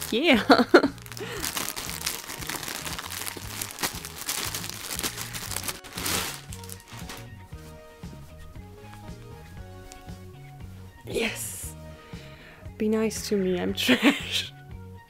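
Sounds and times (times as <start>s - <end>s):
plastic bag crinkling: 0.0s - 7.4s
background music with bass line: 0.0s - 15.0s.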